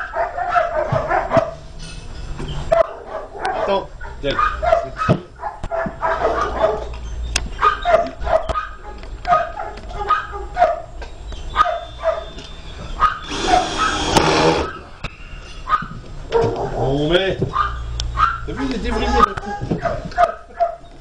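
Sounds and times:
dog barking: 0.0 - 1.6, 2.7 - 7.0, 7.6 - 12.4, 13.0 - 14.9, 15.7 - 16.8, 17.5 - 20.9
cordless drill driving screw: 13.2 - 14.7.

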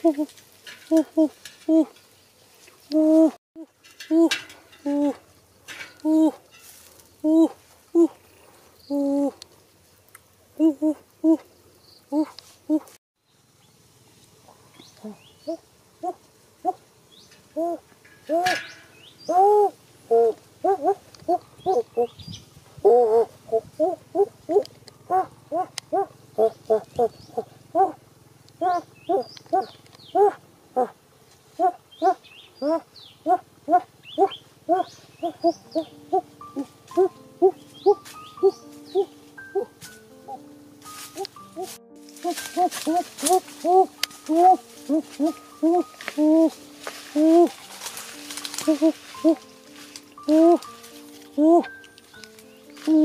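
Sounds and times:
pitched vocal calls: 17.5 - 22.2, 22.8 - 28.0, 28.6 - 31.0, 31.6 - 40.4, 41.1 - 47.6, 48.5 - 49.5, 50.2 - 50.7, 51.4 - 51.8
bird chirps: 20.7 - 28.0, 28.6 - 30.4, 31.6 - 47.6
faint high bird chirps: 28.6 - 30.4, 31.9 - 40.4
background music notes: 32.6 - 53.0.

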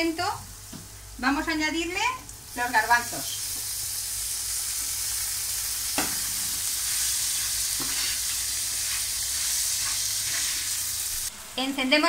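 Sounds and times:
food sizzling in frying pan: 0.0 - 12.0.

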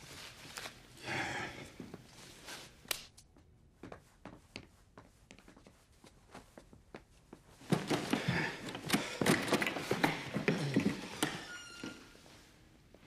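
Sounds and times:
clothes and bags rustling: 0.0 - 1.0.

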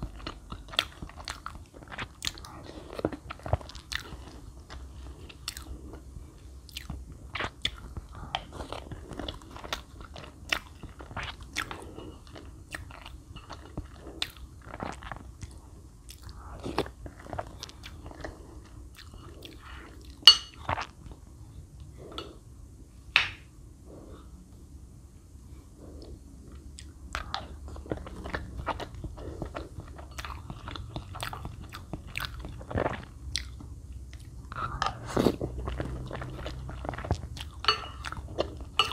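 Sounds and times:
chewing and crunchy biting: 0.0 - 6.0, 26.8 - 38.9.

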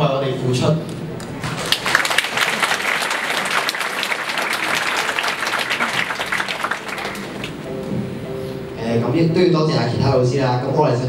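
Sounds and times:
crowd applauding: 1.3 - 7.9.

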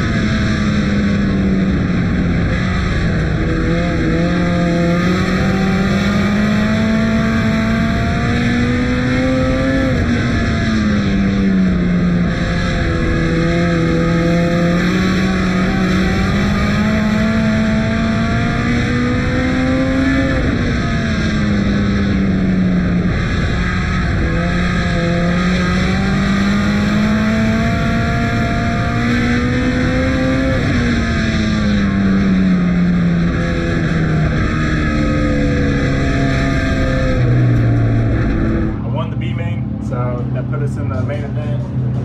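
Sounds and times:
race car engine revving: 0.0 - 42.0.

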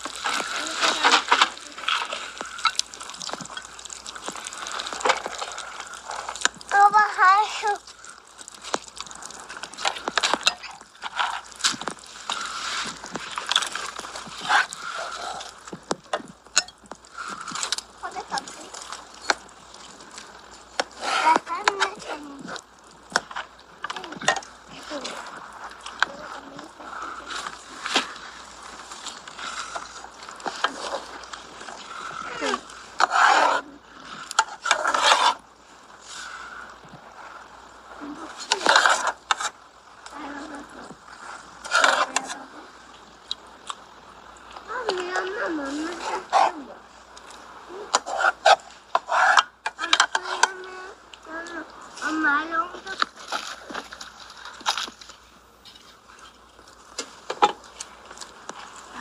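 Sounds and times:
ladle clinking: 16.0 - 17.9
metal spatula scraping a pot: 31.8 - 35.4.

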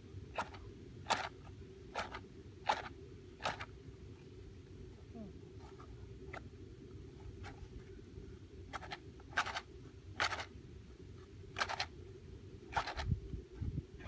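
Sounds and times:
wind rumble on microphone: 12.8 - 14.0.

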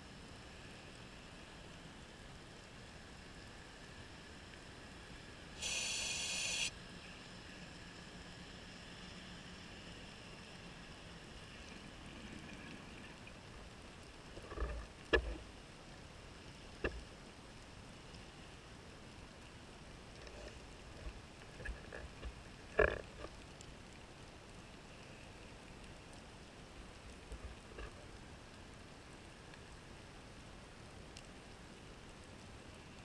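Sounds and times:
underwater hiss and hum: 5.6 - 6.7.

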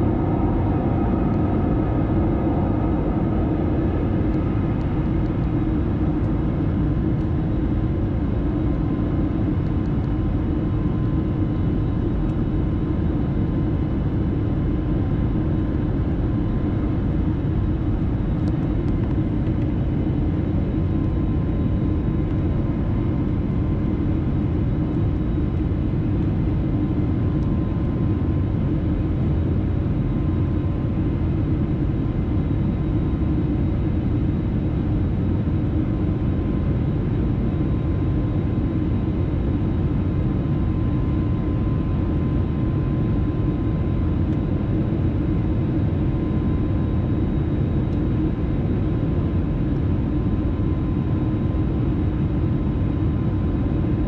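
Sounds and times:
jet engine and air rumble: 0.0 - 54.0.

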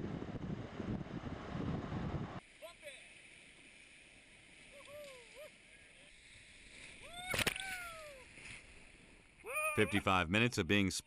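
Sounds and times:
people whooping: 4.8 - 5.5, 7.0 - 8.2.

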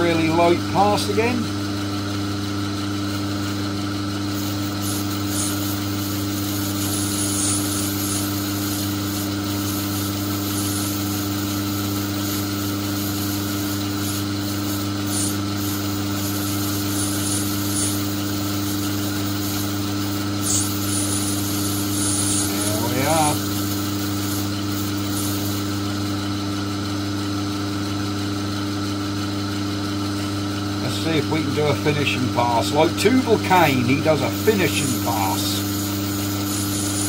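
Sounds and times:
lathe humming: 0.0 - 37.0
cutting tool scraping metal: 4.4 - 25.7.

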